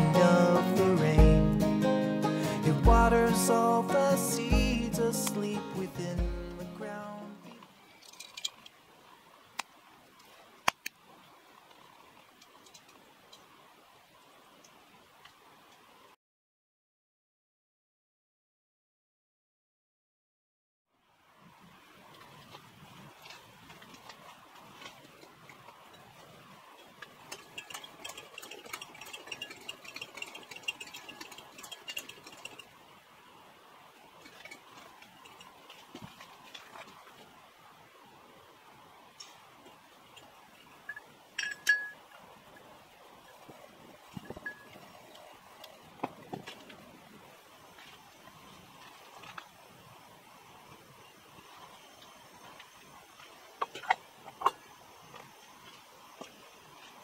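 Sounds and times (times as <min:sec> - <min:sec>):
faint steady background noise: 0:00.0 - 0:16.2, 0:20.9 - 0:57.0
lantern hand pump squeaky clicks: 0:07.9 - 0:08.8, 0:26.8 - 0:32.7, 0:34.2 - 0:36.9, 0:40.1 - 0:42.2, 0:44.1 - 0:45.2, 0:53.6 - 0:54.6
sharp clicks and ticks: 0:27.0 - 0:32.8.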